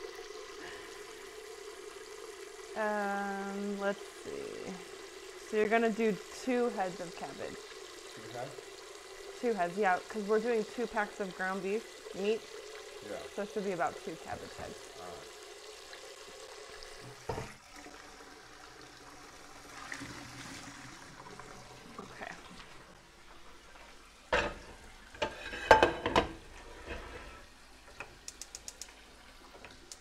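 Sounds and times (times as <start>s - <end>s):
water running into metal pot: 0.0s - 30.0s
metal pot clanking on stove grate: 24.3s - 27.3s.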